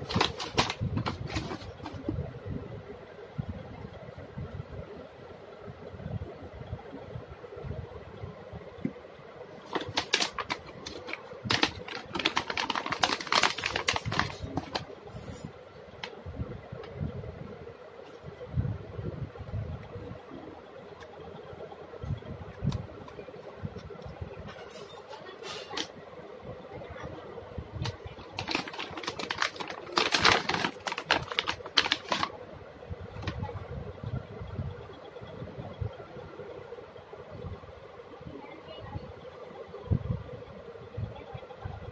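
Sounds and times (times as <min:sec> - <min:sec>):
plastic bag crinkling: 0:00.0 - 0:02.0, 0:09.6 - 0:15.4, 0:27.8 - 0:32.3.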